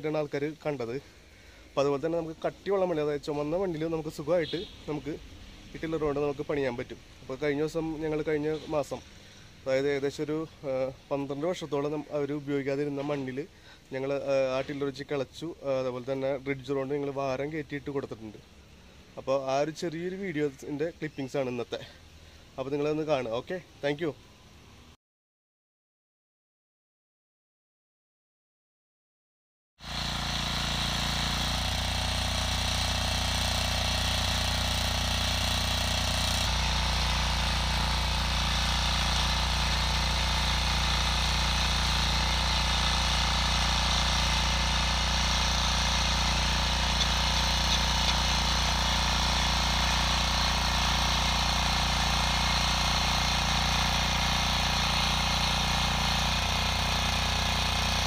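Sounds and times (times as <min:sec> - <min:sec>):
tiller engine running under load: 0:29.8 - 0:58.0
tines digging into hard soil: 0:29.8 - 0:58.0.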